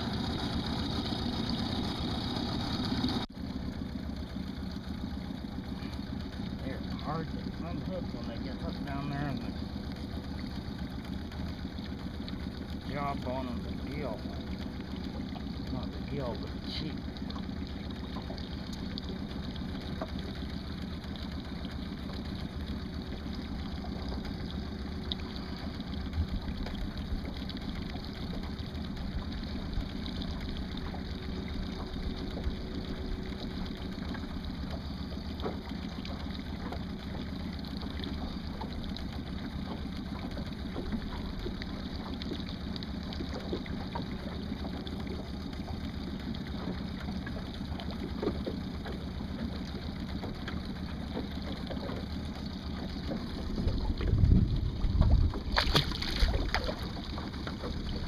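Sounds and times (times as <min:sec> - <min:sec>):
boat motor droning: 0:00.0 - 0:58.0.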